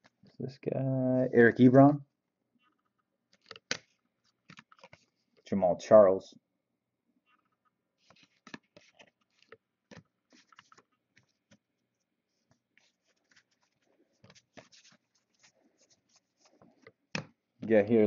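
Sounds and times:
trading cards clicking and scraping: 0:02.6 - 0:05.2, 0:07.3 - 0:11.6, 0:12.5 - 0:17.3.

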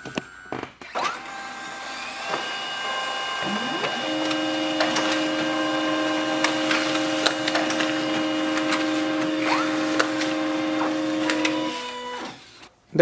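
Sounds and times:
printer motor hum: 0:00.0 - 0:12.7
paper rustling: 0:04.1 - 0:12.7
printer clicks: 0:06.2 - 0:12.3.

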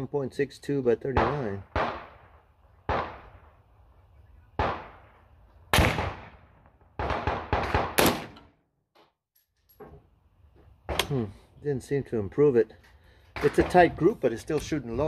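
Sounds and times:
rifle shots with echo: 0:01.1 - 0:03.5, 0:04.6 - 0:08.5.

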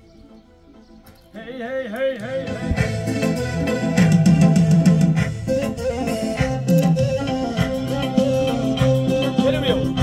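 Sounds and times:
music beat: 0:02.3 - 0:10.0
melody with vibrato over chords: 0:02.4 - 0:10.0.

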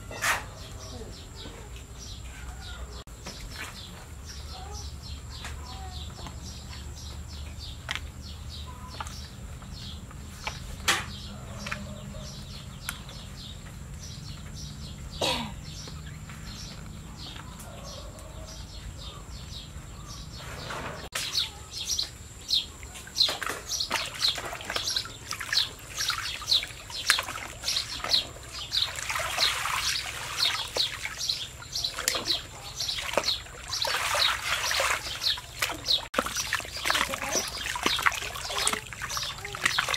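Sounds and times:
water splashing and sloshing: 0:03.1 - 0:15.2, 0:20.3 - 0:39.9.

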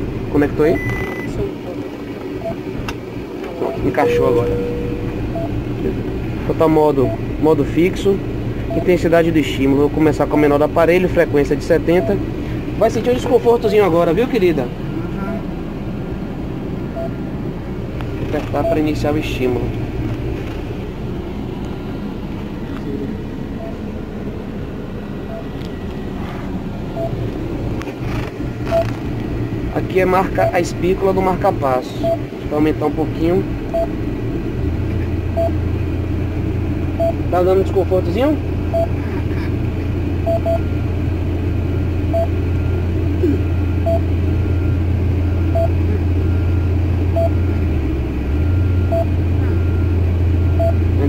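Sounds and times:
low vehicle rumble: 0:00.0 - 0:51.0
cardiac monitor beeps: 0:00.7 - 0:01.3, 0:02.4 - 0:02.6, 0:03.6 - 0:05.7, 0:07.0 - 0:07.3, 0:08.7 - 0:09.0, 0:17.0 - 0:17.2, 0:18.6 - 0:18.9, 0:23.6 - 0:23.8, 0:25.3 - 0:25.6, 0:27.0 - 0:27.2, 0:28.6 - 0:28.9, 0:32.0 - 0:32.3, 0:33.7 - 0:34.0, 0:35.4 - 0:35.6, 0:37.0 - 0:37.7, 0:38.7 - 0:39.0, 0:40.2 - 0:40.8, 0:42.1 - 0:50.9
monitor short beeps: 0:00.7 - 0:01.3, 0:03.6 - 0:05.6, 0:28.7 - 0:28.9, 0:38.7 - 0:38.9, 0:40.3 - 0:40.7, 0:42.1 - 0:42.3, 0:43.5 - 0:44.1, 0:45.5 - 0:46.4.

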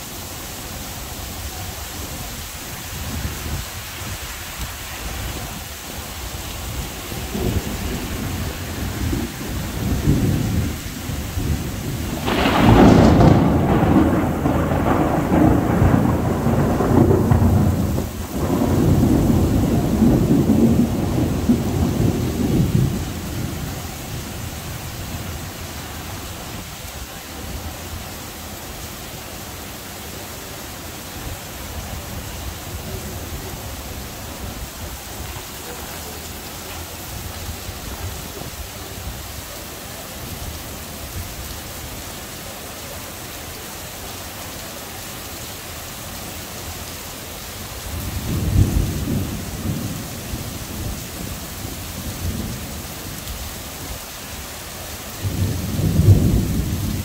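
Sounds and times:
heavy rain: 0:00.0 - 0:57.0
rolling thunder: 0:06.7 - 0:28.1, 0:47.8 - 0:53.2, 0:55.1 - 0:57.0
loud thunderclap: 0:07.2 - 0:24.4, 0:48.0 - 0:51.0, 0:55.2 - 0:57.0.

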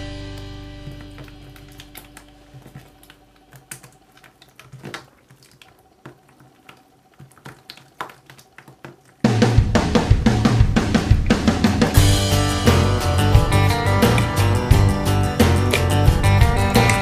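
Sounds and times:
slime squelching: 0:00.7 - 0:09.4.

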